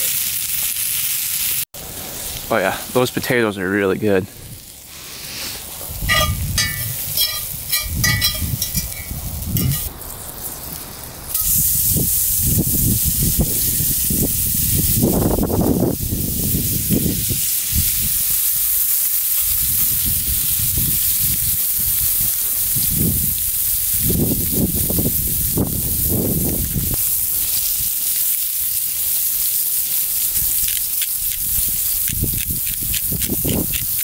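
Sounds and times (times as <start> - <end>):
meat sizzling in a skillet: 0.0 - 2.6, 4.5 - 34.0
fork clinking on skillet: 6.1 - 9.9.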